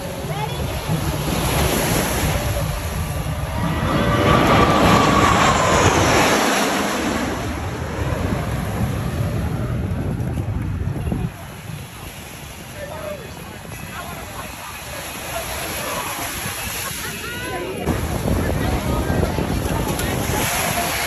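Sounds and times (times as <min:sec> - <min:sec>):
jets passing low roaring: 0:00.0 - 0:11.7
jet whine falling in pitch: 0:03.4 - 0:08.4.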